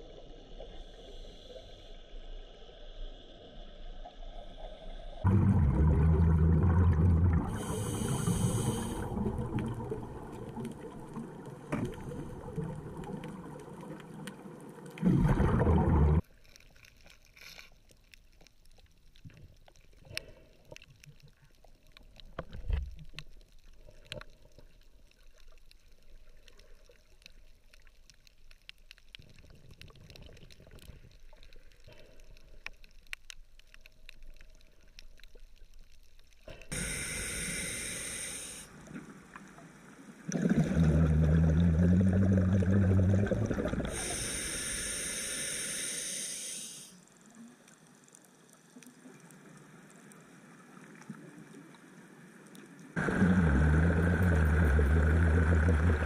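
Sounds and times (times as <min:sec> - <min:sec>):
underwater water noise: 0:00.0 - 0:56.0
low bubbly rumbles: 0:05.2 - 0:14.2, 0:14.9 - 0:16.2, 0:40.3 - 0:44.0, 0:53.0 - 0:56.0
scuba bubbles rushing and gurgling: 0:05.3 - 0:16.3, 0:40.2 - 0:46.6, 0:53.0 - 0:56.0
faint clicks: 0:16.2 - 0:39.7.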